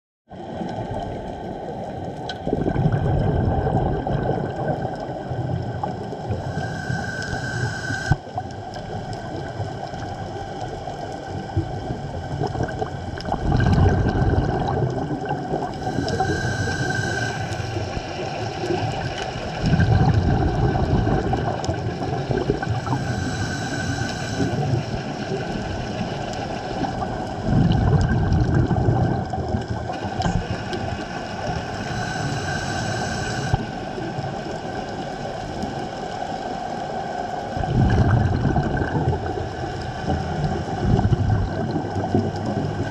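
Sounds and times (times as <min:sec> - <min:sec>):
bubbling underwater exhale: 0:00.3 - 0:36.8, 0:37.4 - 0:42.9
hissing regulator inhale: 0:06.2 - 0:08.3, 0:15.7 - 0:19.6, 0:22.5 - 0:25.4, 0:29.9 - 0:34.1.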